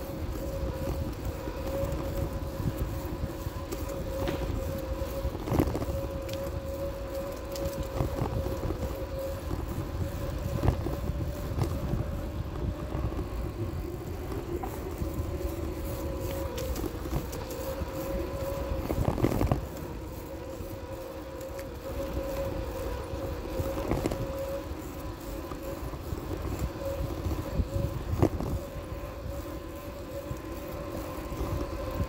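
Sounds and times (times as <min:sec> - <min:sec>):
bicycle ride rumble and rattle: 0:00.0 - 0:32.0
small clicks: 0:03.5 - 0:09.6.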